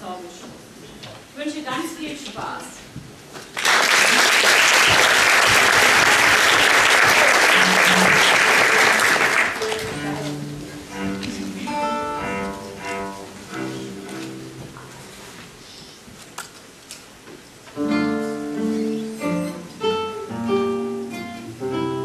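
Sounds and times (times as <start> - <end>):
audience applauding: 3.5 - 10.2
cello: 7.6 - 15.8
guitar: 9.6 - 15.0, 17.7 - 22.0
lute: 9.6 - 15.8.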